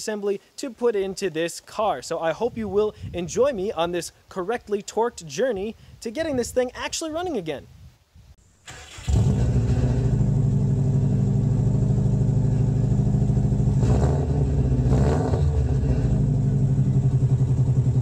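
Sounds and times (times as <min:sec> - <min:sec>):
car engine idling: 0:09.2 - 0:13.8, 0:15.5 - 0:18.0.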